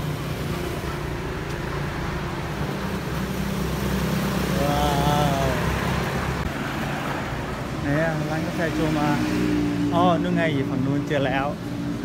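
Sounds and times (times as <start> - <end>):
car and motorcycle engines: 0.0 - 12.0.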